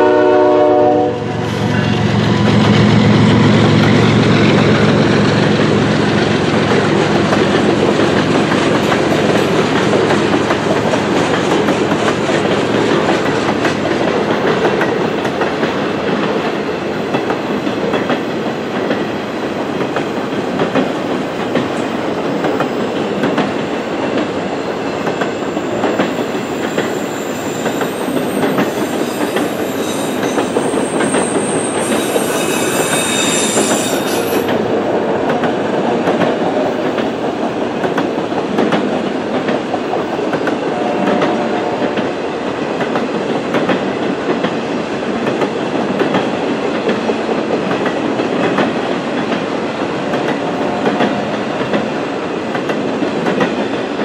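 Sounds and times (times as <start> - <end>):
steel wheels rumbling on rail: 0.0 - 54.0
high wheel squeal: 26.4 - 34.5.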